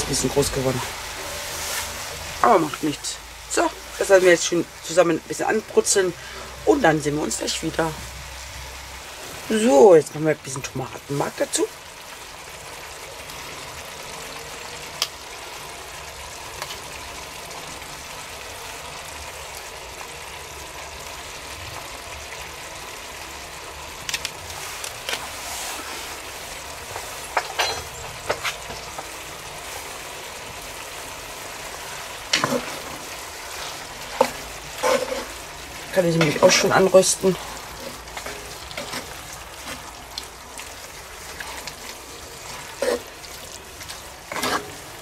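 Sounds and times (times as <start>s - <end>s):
food sizzling in a pot: 0.0s - 45.0s.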